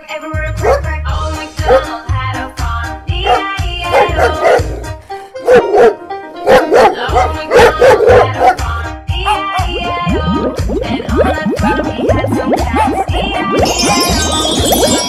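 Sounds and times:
dog barking: 0.6s - 0.8s, 1.6s - 1.9s, 3.2s - 8.6s, 9.2s - 9.8s
upbeat music with bass beat: 7.1s - 15.0s.

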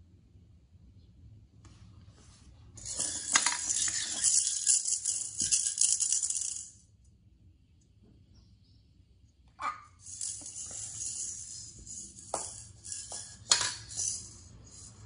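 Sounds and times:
maraca rattling: 2.8s - 6.8s, 9.6s - 15.0s.

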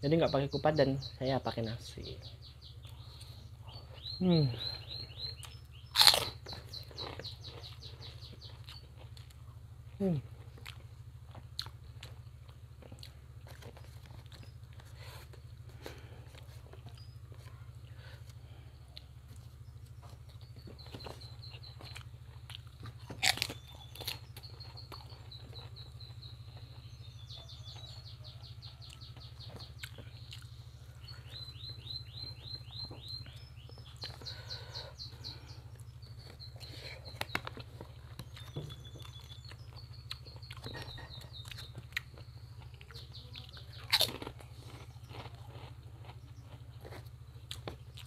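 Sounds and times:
steady low hum: 0.0s - 48.0s
chewing crackers: 2.7s - 48.0s
sharp crunches: 2.9s - 9.4s, 19.3s - 28.0s, 28.8s - 48.0s.

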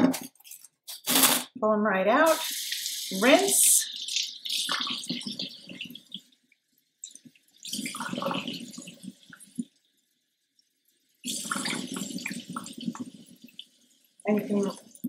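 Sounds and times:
tap water running into bottle: 2.3s - 6.3s
water splashing into metal sink: 2.3s - 6.3s, 7.0s - 9.8s, 11.2s - 15.0s.

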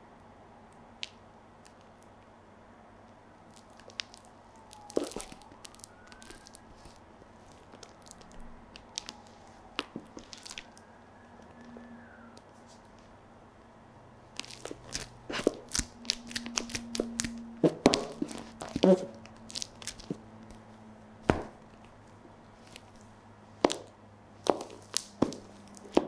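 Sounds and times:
heels squelching mashed banana: 14.4s - 20.2s
squeak: 18.6s - 19.2s.

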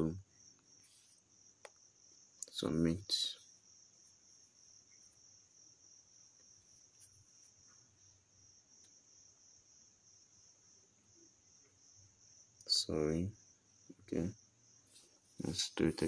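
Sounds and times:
high-pitched cricket trill: 0.0s - 16.0s.

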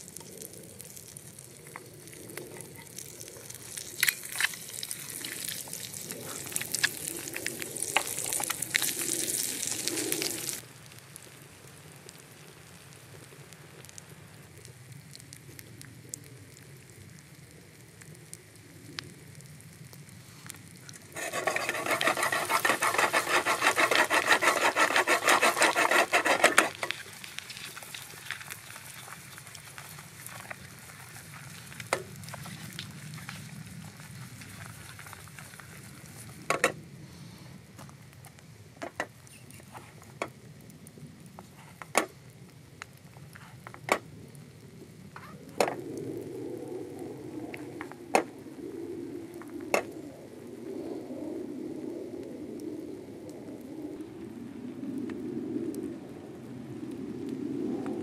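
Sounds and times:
eggs sizzling in hot oil: 0.0s - 36.5s.

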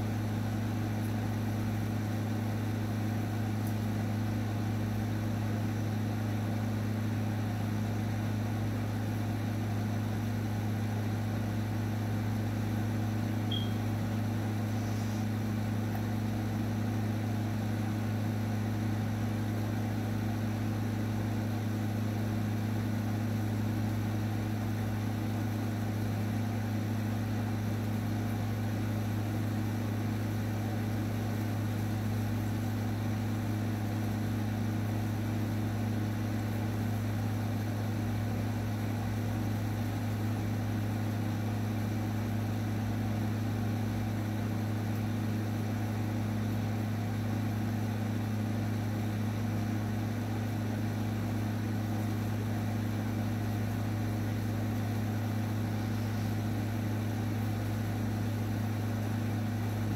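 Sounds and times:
faint high chirp: 13.4s - 13.9s.

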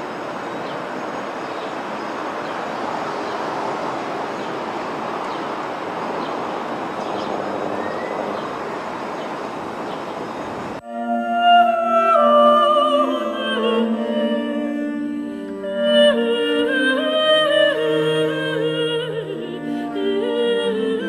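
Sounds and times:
distant traffic hum: 0.0s - 10.8s.

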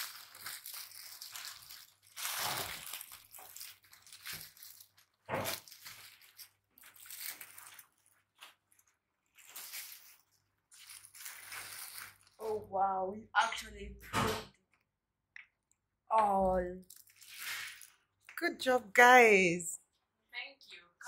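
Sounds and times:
packaging rustling and crinkling: 0.0s - 12.4s, 16.8s - 18.0s.

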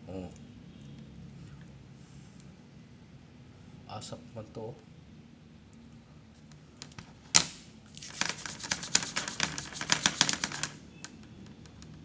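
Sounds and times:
headset cable clicking and rustling: 6.8s - 12.0s.

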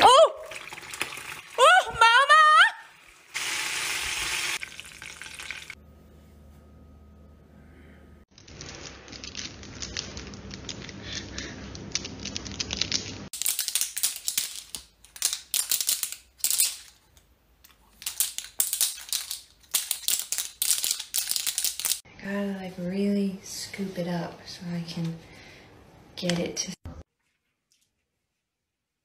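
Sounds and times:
oil sizzling in a frying pan: 2.9s - 5.8s.

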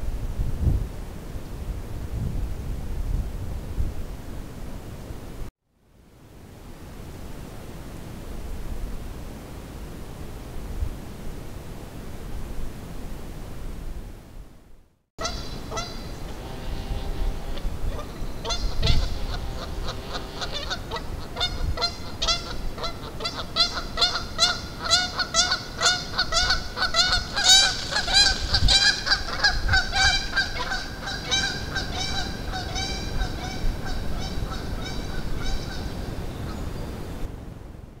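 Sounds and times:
geese honking: 15.2s - 36.6s.

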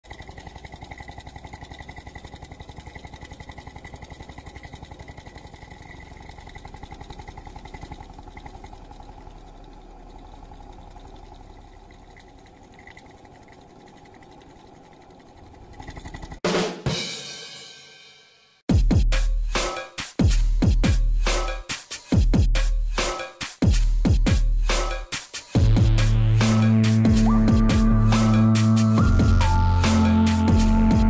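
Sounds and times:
hot air engine buzzing rattle: 0.0s - 16.4s, 24.6s - 31.0s.

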